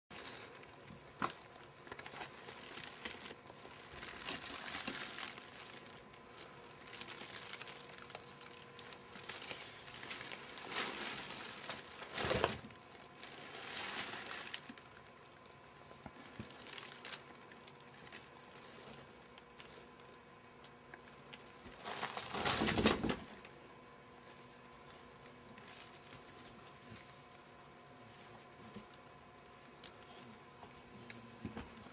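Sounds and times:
rabbits rustling on carpet: 0:00.2 - 0:15.0
cardboard box crinkling: 0:00.2 - 0:15.1, 0:16.1 - 0:20.2, 0:21.6 - 0:23.2.

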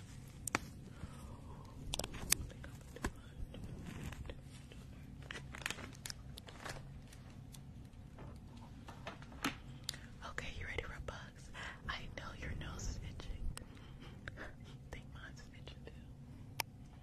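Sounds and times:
foil packet crinkling: 0:05.1 - 0:07.6.

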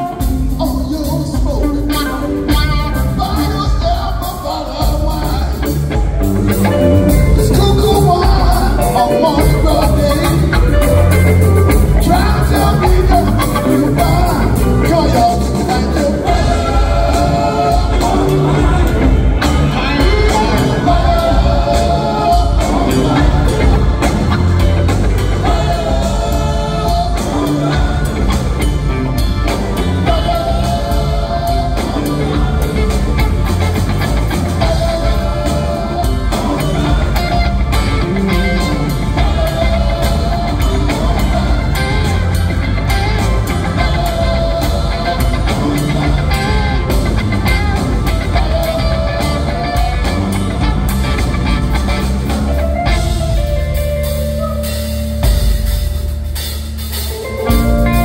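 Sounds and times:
live rock band playing funk: 0:00.0 - 0:58.0.

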